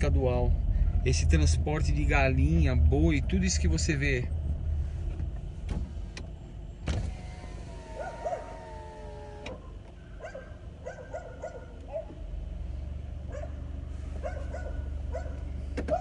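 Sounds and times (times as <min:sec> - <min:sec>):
car engine idling: 0:00.0 - 0:16.0
dog howling: 0:07.2 - 0:10.4
dogs barking in high yaps: 0:07.8 - 0:12.2, 0:13.3 - 0:13.6, 0:14.2 - 0:16.0.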